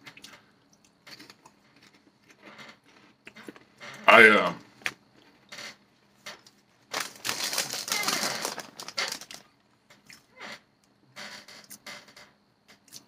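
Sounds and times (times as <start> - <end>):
foil chip bag crinkling: 6.8 - 9.6.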